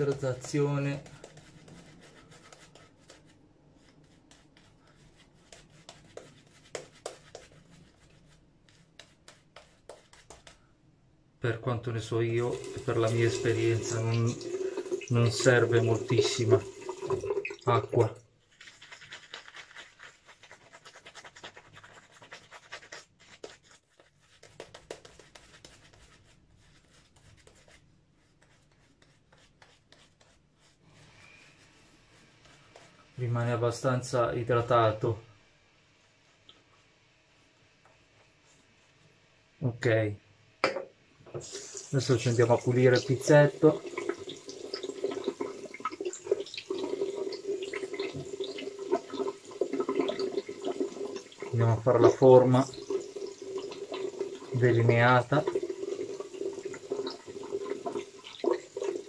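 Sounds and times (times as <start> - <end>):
shaving brush strokes: 0.0 - 10.6, 12.4 - 16.6, 18.4 - 34.0.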